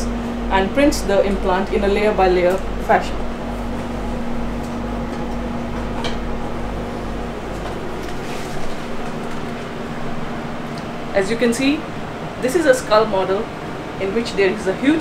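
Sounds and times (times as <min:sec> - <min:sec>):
low pulsing throb: 0:00.0 - 0:07.6
printer hum and fan noise: 0:00.0 - 0:15.0.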